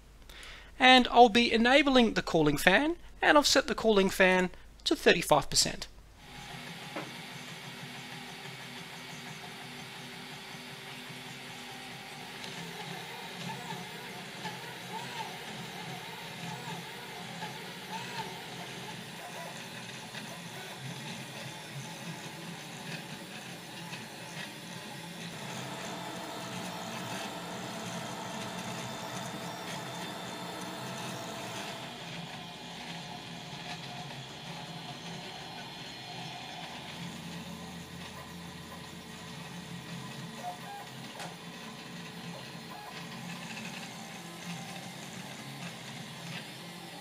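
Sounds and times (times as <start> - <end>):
cooling fan running: 6.1 - 39.9
stepper motors whirring: 6.3 - 38.4.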